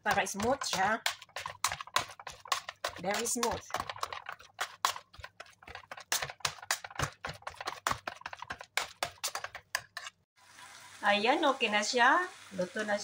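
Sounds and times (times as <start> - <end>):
masher knocking in saucepan: 0.0 - 10.0.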